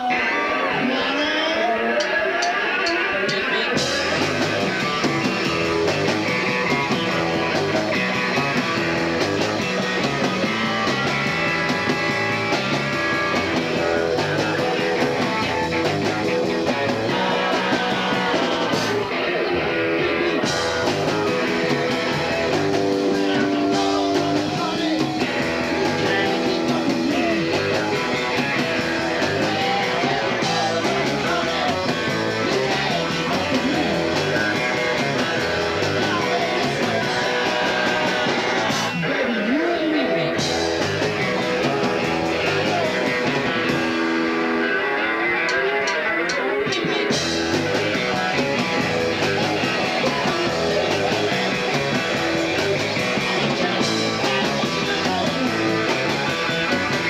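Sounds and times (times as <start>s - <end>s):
bass line: 0.0s - 57.0s
electric guitar: 0.0s - 57.0s.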